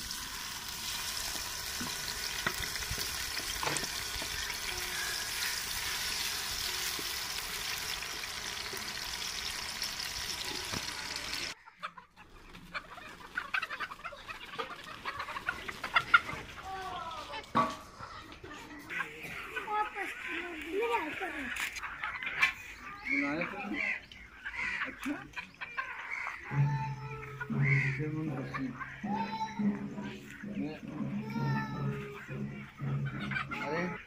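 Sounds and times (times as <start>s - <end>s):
onions sizzling in oil: 0.0s - 11.6s
chickens clucking: 0.4s - 34.0s.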